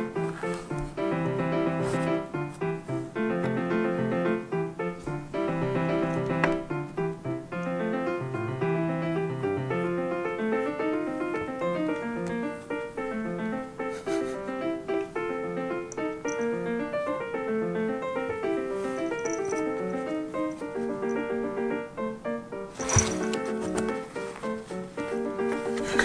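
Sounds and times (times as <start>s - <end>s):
piano music: 0.0s - 26.0s.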